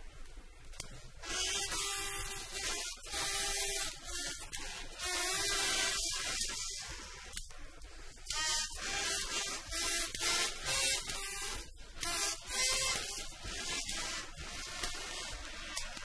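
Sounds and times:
record hiss and surface noise: 0.0s - 16.0s.

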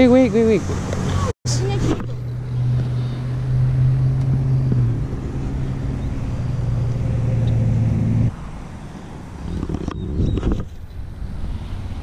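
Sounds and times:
low motor hum: 1.6s - 8.3s.

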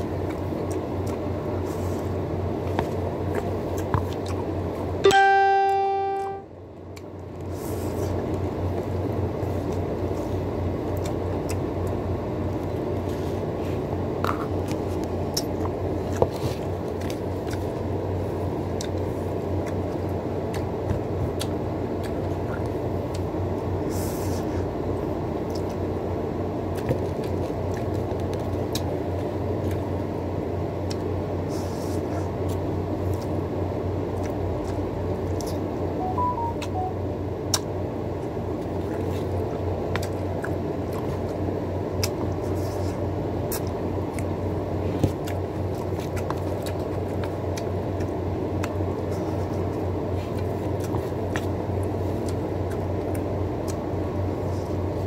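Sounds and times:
steady low hum: 0.0s - 55.0s
chewing and slurping noodles: 37.5s - 55.0s.

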